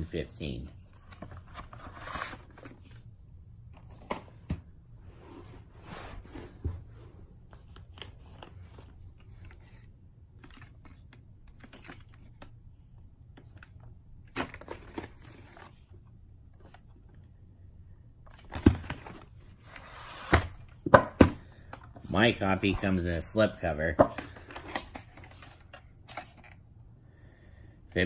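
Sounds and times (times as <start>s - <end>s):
rustling cardboard and plastic: 0.3s - 3.1s, 5.6s - 17.2s, 24.0s - 26.6s
cardboard scrape: 1.3s - 3.0s, 19.0s - 20.6s.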